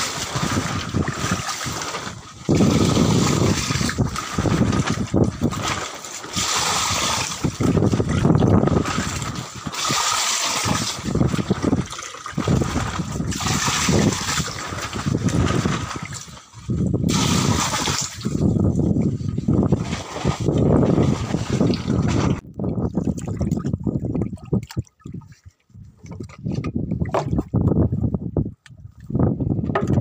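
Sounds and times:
water sloshing and splashing: 0.0s - 28.0s.

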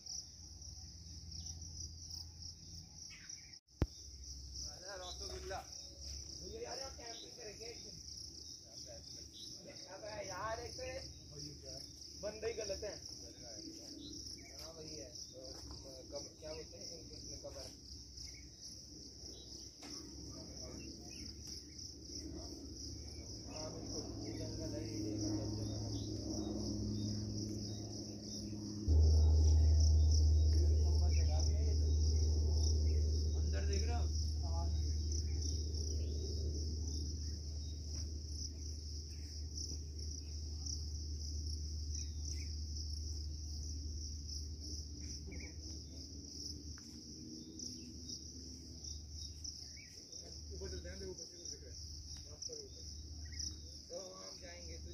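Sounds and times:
high-pitched insect chorus: 0.0s - 54.9s
deep low rumble: 20.2s - 49.3s.

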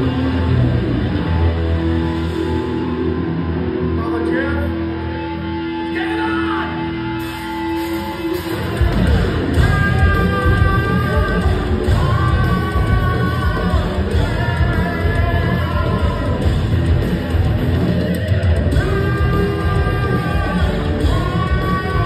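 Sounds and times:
live rock band playing: 0.0s - 22.0s
heavy drum and bass: 7.2s - 22.0s.

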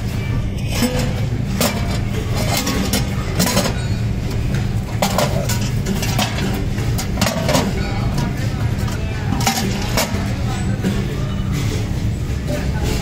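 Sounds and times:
low machine hum: 0.0s - 13.0s
metal pots clanking on concrete: 0.6s - 10.7s.

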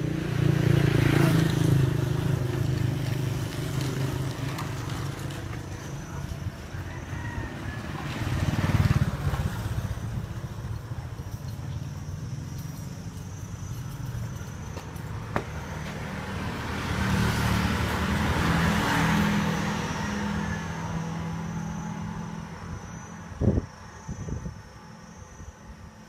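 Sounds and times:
vehicle engine passing by: 0.0s - 25.2s.

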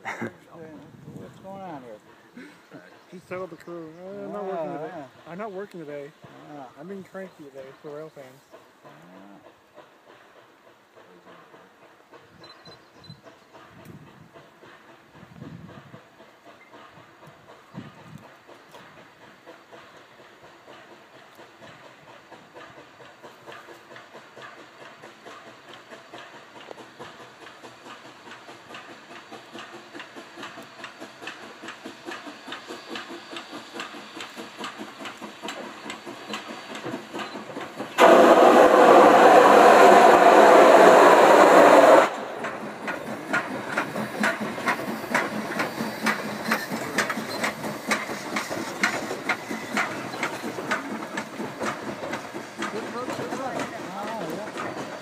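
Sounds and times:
steam locomotive exhaust beats: 0.0s - 55.0s
steam hiss blast: 13.2s - 55.0s.

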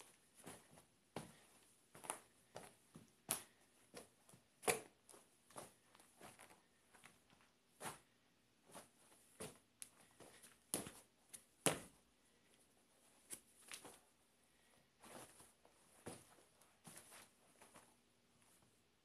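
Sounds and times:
soft footstep thuds on carpet: 15.0s - 17.9s.

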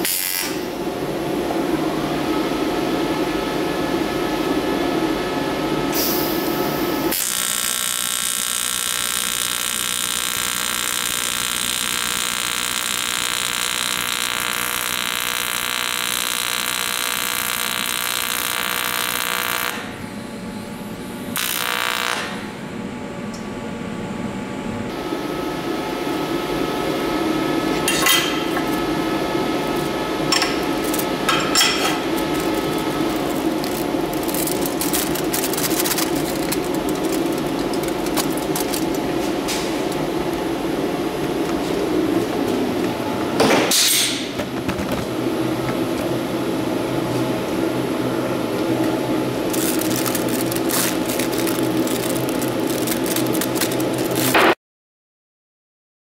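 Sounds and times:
welding arc buzzing: 0.0s - 0.9s, 6.0s - 20.0s, 21.3s - 22.6s, 24.9s - 44.4s, 48.0s - 54.6s
foil crinkling: 29.6s - 30.0s, 30.6s - 31.2s, 31.8s - 40.2s, 49.4s - 54.4s.

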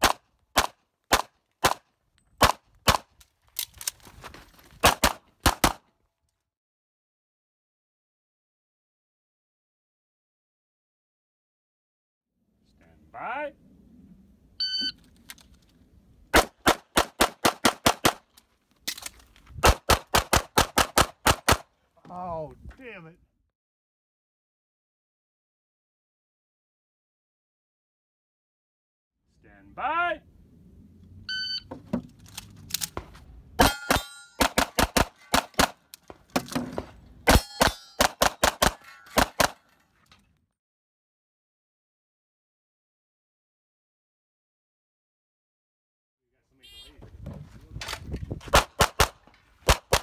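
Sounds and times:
shot timer beep: 14.6s - 15.0s
pistol firing rapid shots: 16.4s - 18.2s, 19.6s - 21.7s, 34.4s - 35.8s, 37.3s - 39.6s, 48.6s - 50.0s
metallic ring: 33.6s - 34.4s, 37.4s - 38.0s
rapid pistol fire: 34.4s - 35.8s, 48.6s - 50.0s.

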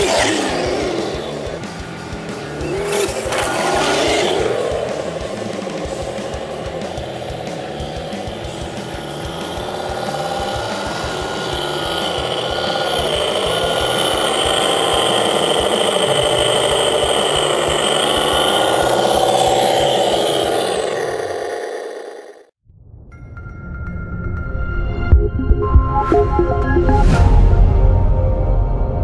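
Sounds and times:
toy truck running: 0.0s - 22.5s
simulated truck engine sound: 0.0s - 22.6s, 25.1s - 29.0s.

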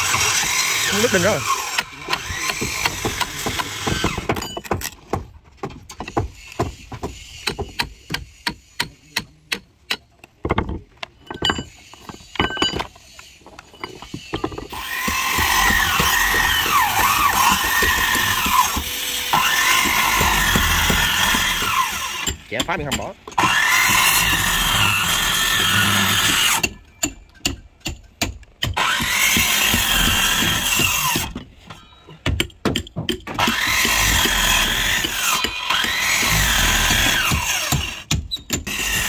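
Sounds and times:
power tool running: 0.0s - 4.3s, 13.8s - 22.4s, 23.3s - 26.6s, 33.4s - 38.1s
hammer striking chisel: 1.7s - 12.9s, 13.8s - 24.5s, 25.5s - 31.4s, 32.2s - 39.0s.

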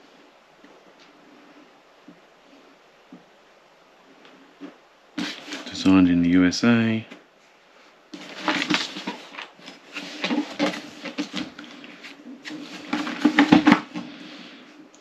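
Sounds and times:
cardboard rustling and scraping: 4.6s - 5.8s, 8.1s - 14.6s.

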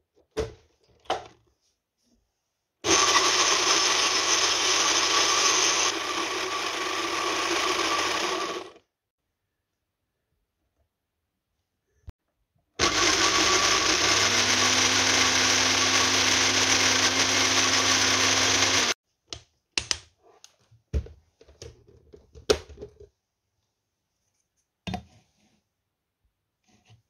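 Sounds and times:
blender motor running: 2.8s - 8.8s, 12.8s - 19.0s.

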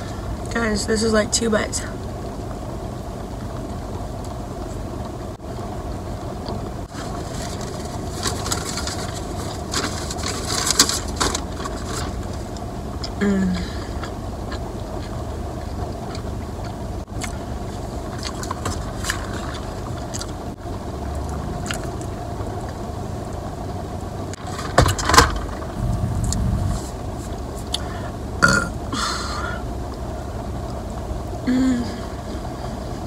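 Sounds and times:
low hum inside car: 0.0s - 33.0s
person chewing: 13.0s - 17.4s.

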